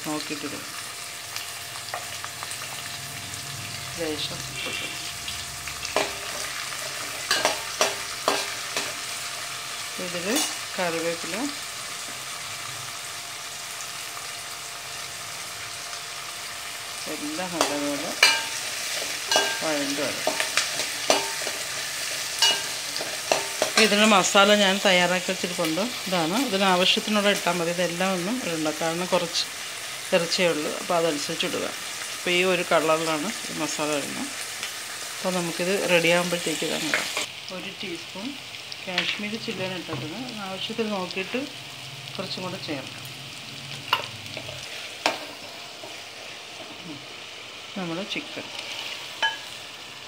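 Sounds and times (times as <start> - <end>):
food sizzling in hot oil: 0.0 - 50.0
metal spatula scraping pan: 17.6 - 24.0, 48.4 - 49.6.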